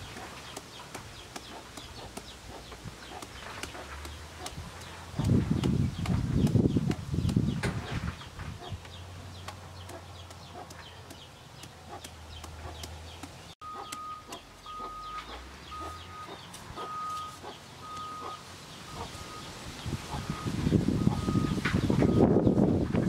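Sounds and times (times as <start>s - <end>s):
knife chopping papaya: 0.2s - 7.6s, 9.4s - 14.0s
animal calling: 13.6s - 19.4s.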